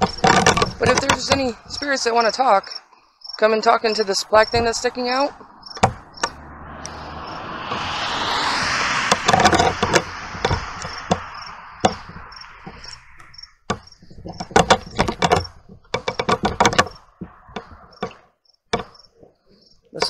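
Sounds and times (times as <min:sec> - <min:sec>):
sharp clicks and knocks: 0:00.0 - 0:01.9, 0:04.4 - 0:19.3
crickets chirping: 0:00.0 - 0:20.0
passing car road noise: 0:04.0 - 0:18.2.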